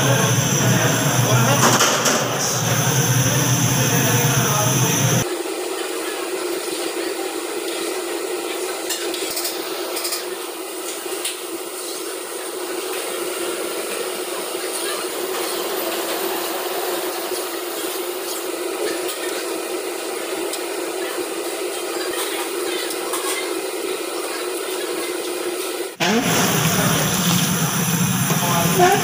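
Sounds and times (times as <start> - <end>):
dough deep-frying in oil: 26.2 - 29.0.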